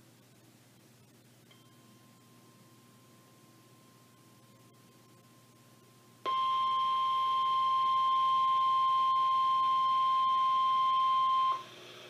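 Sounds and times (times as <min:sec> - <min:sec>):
steady warning alarm tone: 0:06.3 - 0:11.6.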